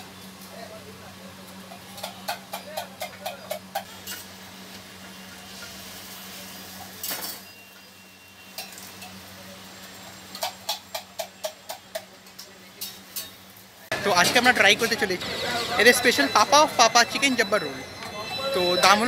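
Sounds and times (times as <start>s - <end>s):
metal spatula clinking on griddle: 6.8s - 9.2s, 10.4s - 13.4s.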